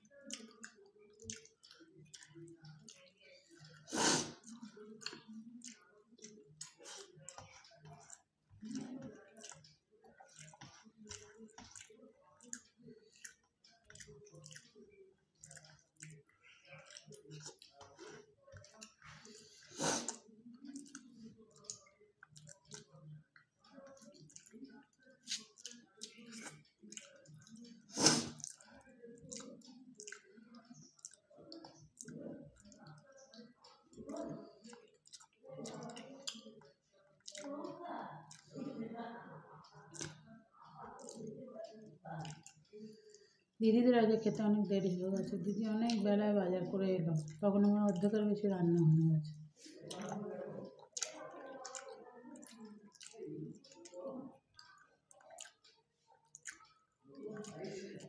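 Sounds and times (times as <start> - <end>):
fingers squishing food on plate: 0.2 - 37.5
chewing smacks: 0.2 - 37.6, 38.2 - 38.7, 39.6 - 43.4, 47.2 - 48.0, 49.6 - 58.0
man chewing: 9.4 - 14.7, 16.8 - 20.2, 20.8 - 22.9, 25.2 - 27.1, 30.9 - 31.2, 34.2 - 36.4, 49.7 - 53.8
wet mouth clicks: 10.4 - 14.7, 25.3 - 27.2, 28.0 - 28.6, 29.3 - 30.3, 30.9 - 31.2, 34.1 - 36.5, 39.9 - 40.2, 42.2 - 42.6, 49.8 - 54.0, 55.1 - 56.7.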